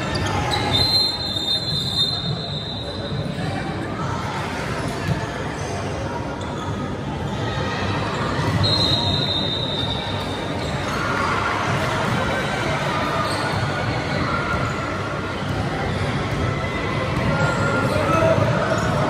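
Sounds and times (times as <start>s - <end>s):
crowd chatter: 0.0s - 19.0s.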